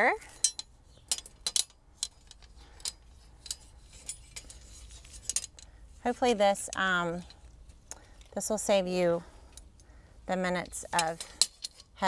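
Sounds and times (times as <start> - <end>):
metal poles clinking: 0.0 - 8.7, 10.4 - 12.0.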